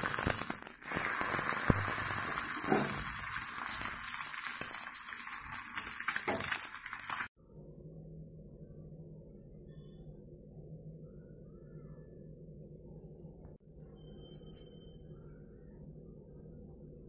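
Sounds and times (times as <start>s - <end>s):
egg sizzling in oil: 0.0s - 7.3s
faint low hum: 7.4s - 17.0s.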